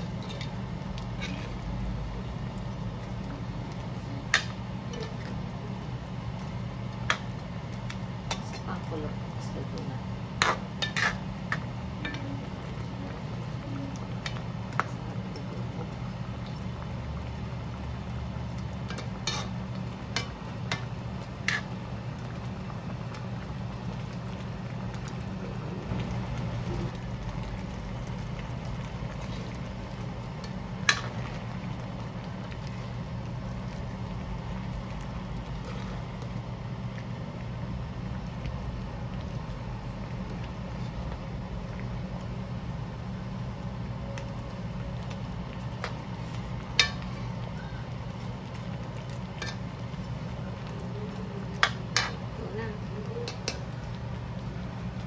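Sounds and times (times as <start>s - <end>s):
spoon stirring in wok: 0.0s - 3.6s, 10.3s - 15.7s, 18.5s - 22.2s, 48.0s - 54.0s
steady low hum: 0.0s - 55.0s.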